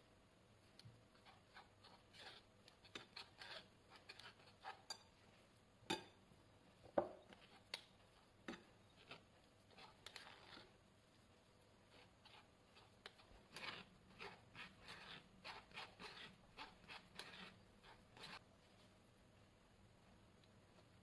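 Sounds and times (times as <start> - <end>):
spoon scraping through sieve: 1.1 - 5.1, 7.2 - 10.8, 11.8 - 18.4.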